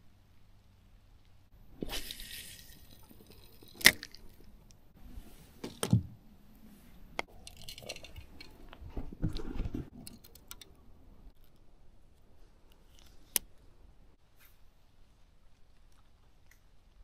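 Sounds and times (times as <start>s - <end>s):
fishing tackle clicks: 10.0s - 11.7s.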